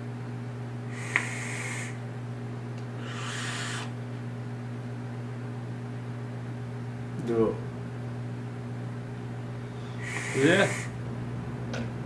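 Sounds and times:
steady electrical hum: 0.0 - 12.0
breathy hisses of vapour blown out: 0.9 - 2.0, 3.0 - 4.0, 9.8 - 11.0.

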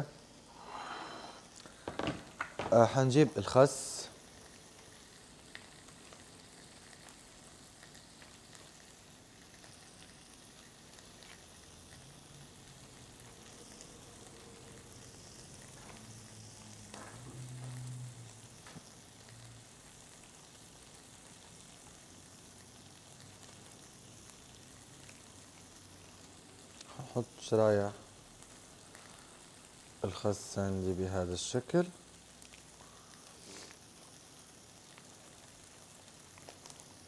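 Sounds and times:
seafood sizzling in a pan: 0.0 - 37.0.

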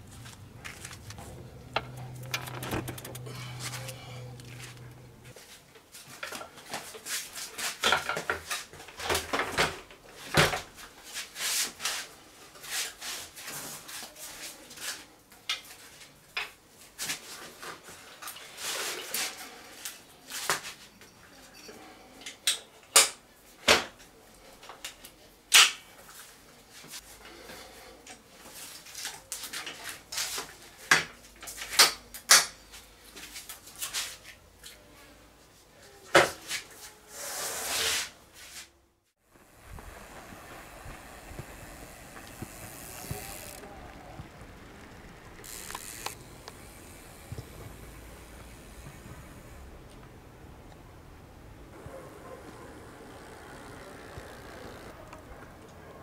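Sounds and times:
bike frame rattling and knocking: 0.6 - 3.7
hinges latching with clacks: 1.0 - 3.6.

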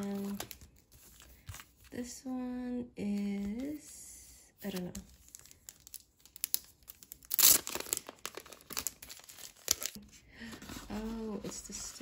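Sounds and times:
plastic sleeve crinkling: 0.0 - 2.0, 4.6 - 10.0.

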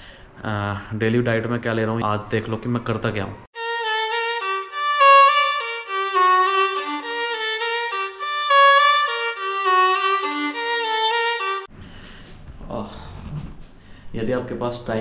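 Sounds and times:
solo violin melody: 3.6 - 11.7.

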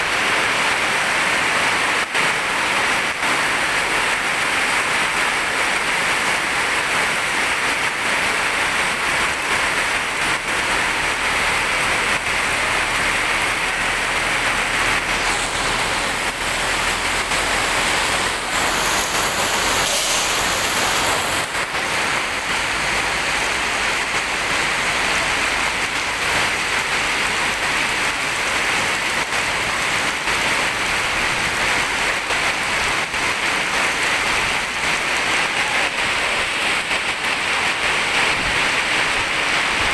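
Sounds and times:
heavy rain on a road: 0.0 - 39.9
tyres hissing through water: 12.4 - 21.7.

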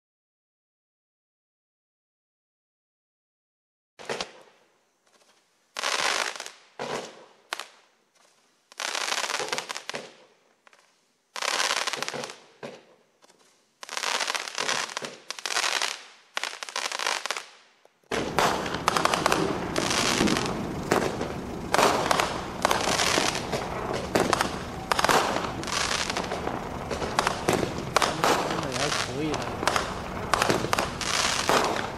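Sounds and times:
fireworks crackling: 4.0 - 31.9
roman candles firing: 18.1 - 31.9.

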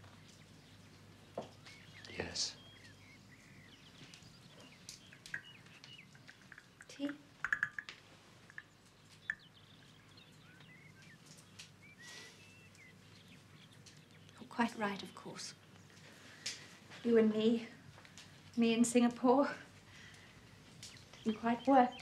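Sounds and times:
small birds chirping: 0.0 - 22.0
teacups clinking: 5.0 - 10.0.

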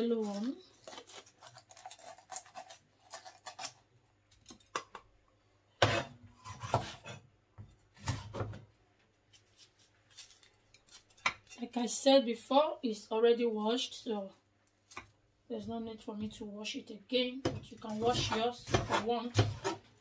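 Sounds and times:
knife slicing on cutting board: 5.8 - 7.2, 18.0 - 19.8.

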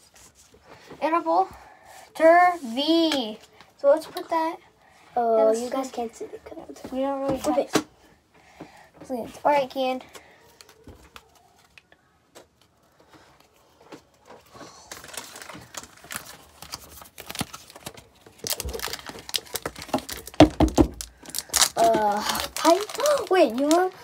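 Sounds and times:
cards rustling and tapping: 10.0 - 24.0
foil wrappers crinkling and tearing: 14.0 - 24.0.

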